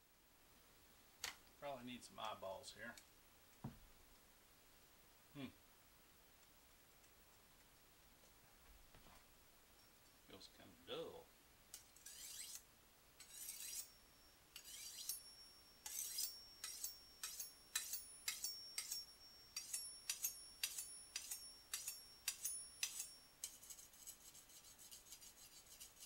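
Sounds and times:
knife scraping on sharpener: 11.8s - 12.6s, 13.2s - 14.0s, 14.6s - 26.0s.

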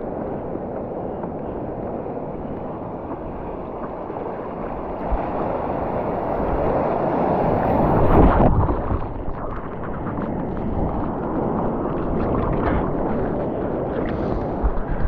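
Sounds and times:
ocean water rushing and splashing: 0.0s - 15.0s
wind buffeting microphone: 0.0s - 15.0s.

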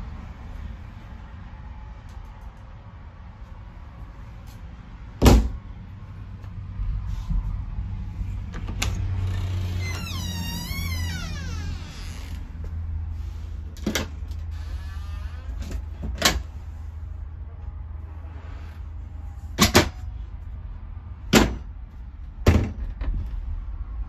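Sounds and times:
cabinet doors opening and shutting: 22.4s - 23.2s.

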